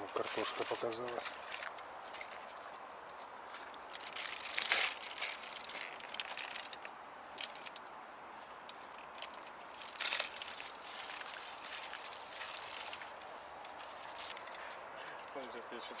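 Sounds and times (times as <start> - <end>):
foil crinkling: 0.0 - 2.6, 3.8 - 6.8, 9.0 - 13.1, 13.7 - 14.6.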